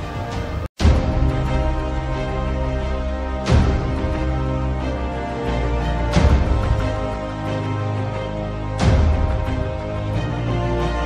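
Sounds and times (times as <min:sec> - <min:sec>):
background music held chords: 0:00.0 - 0:11.0.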